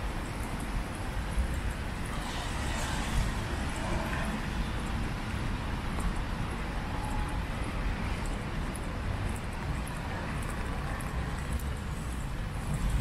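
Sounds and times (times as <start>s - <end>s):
road traffic noise: 0.0s - 13.0s
faint light ticks: 5.9s - 6.3s, 8.1s - 12.2s.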